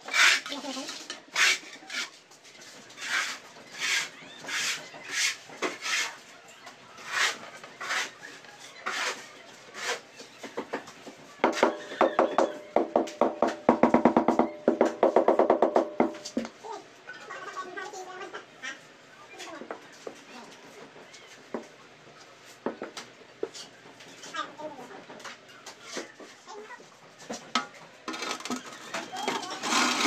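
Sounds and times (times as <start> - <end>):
tile scraping on mortar: 0.0 - 6.2, 7.0 - 10.1, 28.1 - 30.0
knocks on ceramic tile: 11.4 - 16.2.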